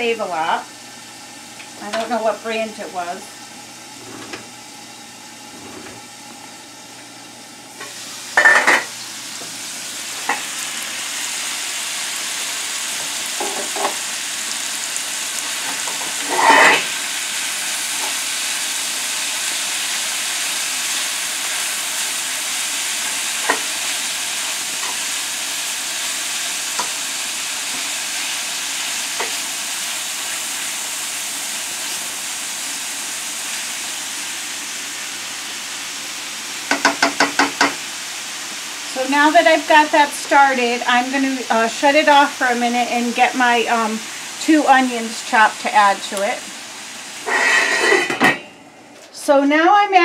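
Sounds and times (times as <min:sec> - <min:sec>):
meat sizzling in skillet: 0:00.0 - 0:48.2
spatula scraping pan: 0:15.9 - 0:16.9, 0:47.2 - 0:48.3.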